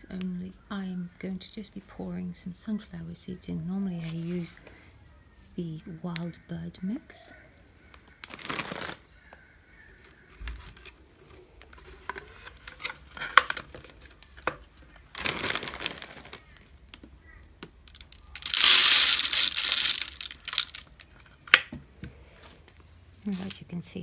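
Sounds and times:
plastic bag crinkling: 0:08.2 - 0:09.0, 0:12.1 - 0:16.7, 0:17.8 - 0:21.4
seeds rattling into a bottle: 0:17.8 - 0:21.2.

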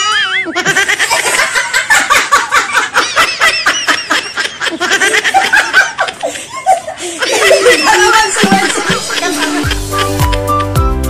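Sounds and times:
women and children laughing: 0:00.0 - 0:10.6.

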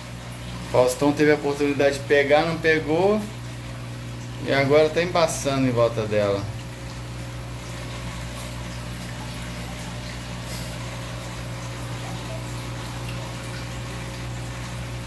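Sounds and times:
aquarium pump humming: 0:00.0 - 0:15.0
water circulating: 0:00.0 - 0:15.0.

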